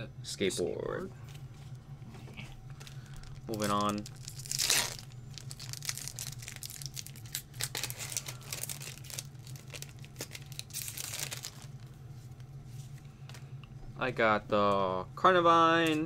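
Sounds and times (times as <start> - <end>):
foil wrapper crinkling and tearing: 2.7 - 12.0.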